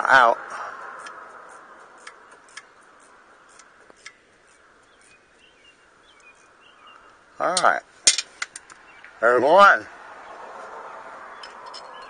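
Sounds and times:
bird chirps: 2.2s - 7.6s, 8.6s - 9.2s, 10.2s - 12.0s.

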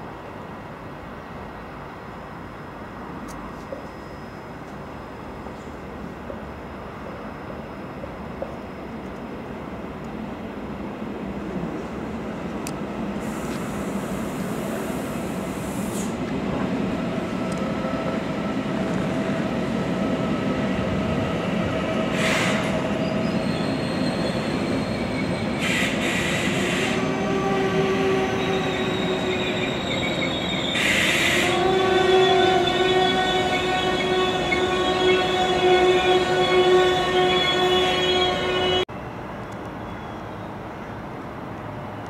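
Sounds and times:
train slowing to a stop: 0.0s - 42.0s.

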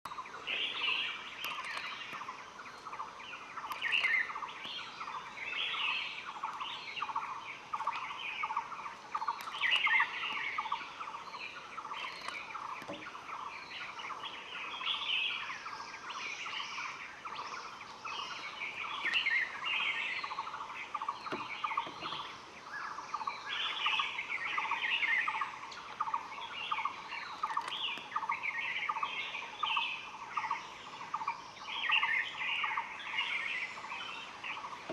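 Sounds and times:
birds chirping and calling: 0.1s - 34.9s.

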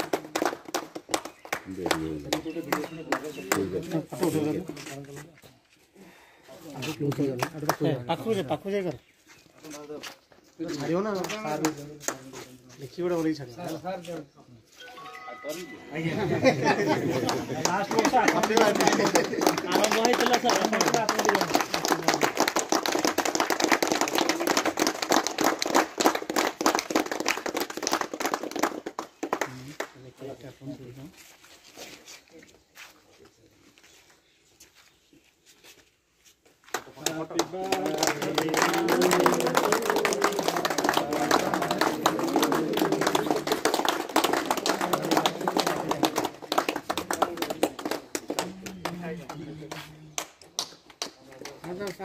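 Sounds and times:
group applauding: 0.0s - 4.6s, 6.8s - 8.6s, 10.7s - 12.5s, 14.9s - 30.1s, 36.7s - 52.0s
people clapping: 0.0s - 5.2s, 6.8s - 8.8s, 9.6s - 13.3s, 14.9s - 30.3s, 36.6s - 52.0s
voices: 36.9s - 50.4s.

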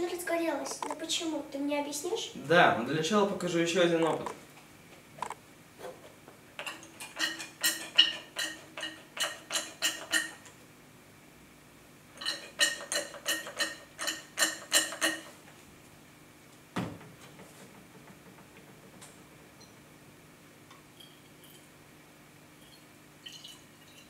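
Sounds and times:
glassware clinking: 6.6s - 10.4s, 12.2s - 15.3s, 20.7s - 21.8s, 22.6s - 24.0s.

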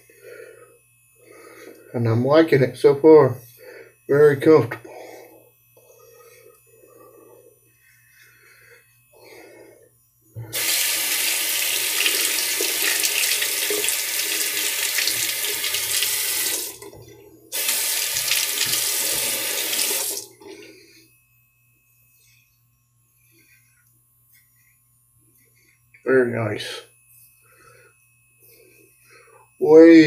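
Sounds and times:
tap water running into sink: 10.5s - 17.0s, 17.6s - 20.5s.

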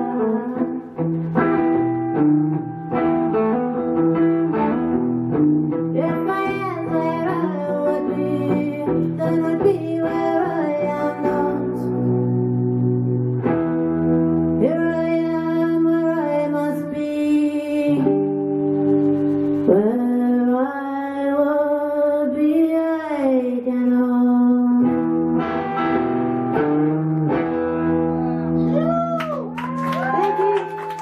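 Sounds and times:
woman singing: 0.0s - 1.0s, 5.8s - 12.2s, 14.6s - 18.3s, 19.6s - 25.3s
strummed electric guitar chords: 0.0s - 29.6s.

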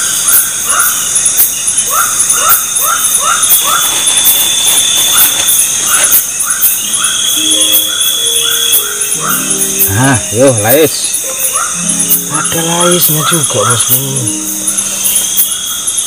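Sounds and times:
night insects buzzing: 0.0s - 16.0s
short repeating insect call: 0.0s - 16.0s
background music: 7.1s - 16.0s.

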